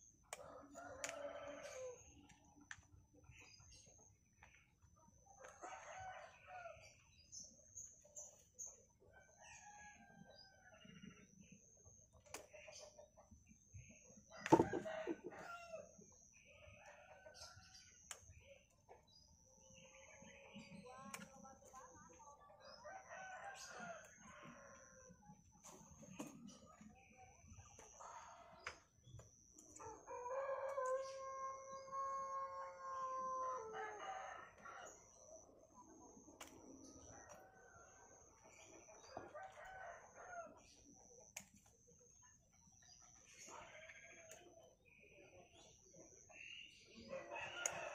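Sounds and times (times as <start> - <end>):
chickens clucking and crowing: 8.7 - 17.8, 22.2 - 28.6, 29.7 - 41.3
rooster crowing: 14.4 - 15.9, 29.8 - 34.8.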